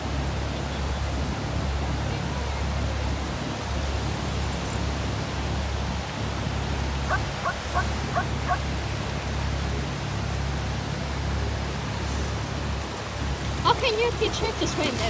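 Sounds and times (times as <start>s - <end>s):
ocean surf washing: 0.0s - 15.0s
wind rumbling on microphone: 0.0s - 15.0s.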